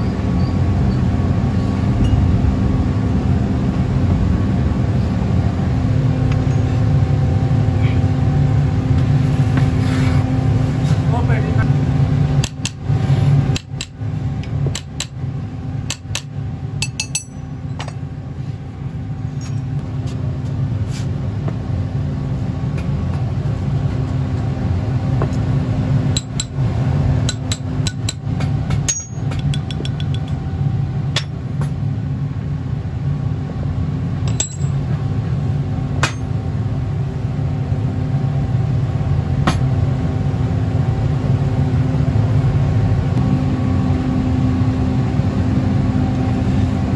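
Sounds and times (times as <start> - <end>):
low machine hum: 0.0 - 46.9
metal tool tapping metal parts: 15.9 - 17.9, 27.3 - 30.4, 34.3 - 34.8.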